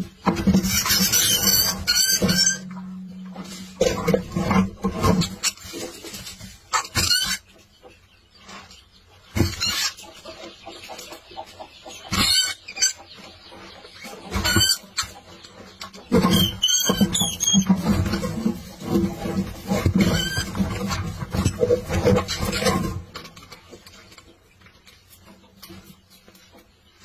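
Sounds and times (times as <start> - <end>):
rats scuffling: 0.0 - 10.8, 11.4 - 27.0
rats squealing: 0.6 - 2.8, 6.8 - 7.4, 16.0 - 23.0.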